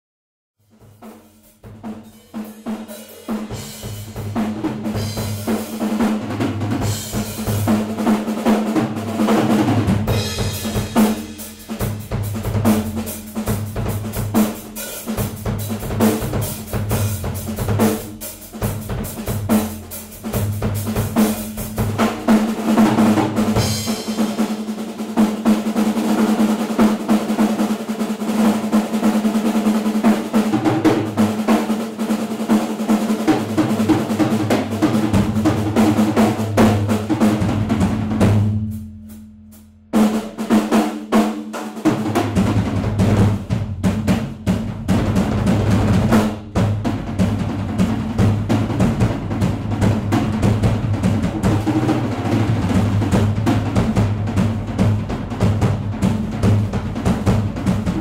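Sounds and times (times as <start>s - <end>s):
cymbals: 0.6s - 8.7s, 9.8s - 28.8s
bass drum pattern: 0.7s - 24.4s, 42.0s - 58.0s
snare and tom rolls: 1.1s - 39.2s, 40.0s - 58.0s.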